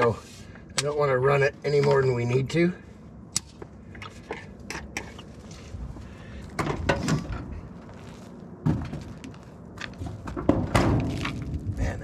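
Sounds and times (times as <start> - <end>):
knocks and clunks of handling: 6.5 - 7.5, 8.6 - 11.4.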